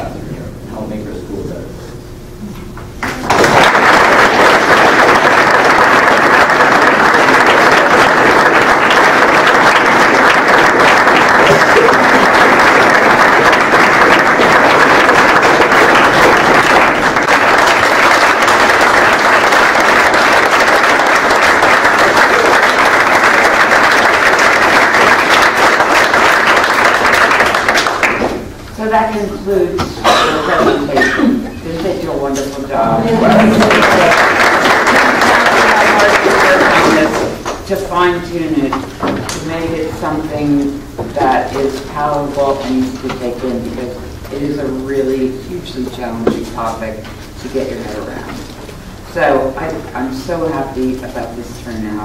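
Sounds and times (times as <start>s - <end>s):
audience applauding: 3.0s - 28.5s, 32.9s - 37.6s.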